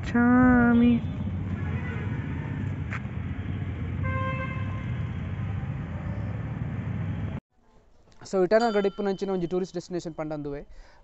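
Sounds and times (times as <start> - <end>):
road traffic rumble: 0.0 - 7.4
vehicle horn: 1.0 - 2.6, 3.4 - 5.6.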